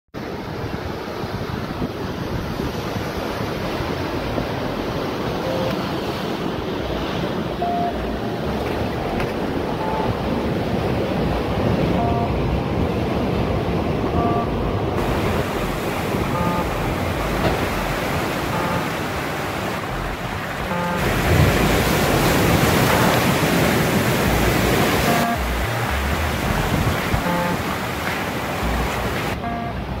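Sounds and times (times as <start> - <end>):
ocean waves breaking on rocks: 0.2 - 30.0
wind on microphone: 20.5 - 27.9.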